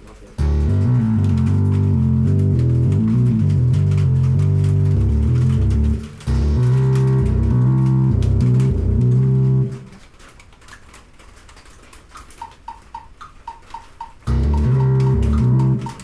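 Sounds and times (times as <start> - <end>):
faint clicks: 0.0 - 16.0
deep synthesizer notes: 0.4 - 10.0, 14.2 - 16.0.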